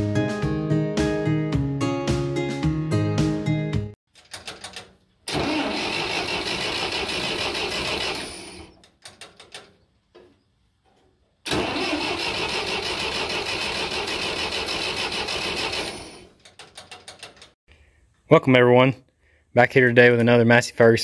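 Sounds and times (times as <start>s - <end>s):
tractor engine cranking: 4.1s - 17.6s.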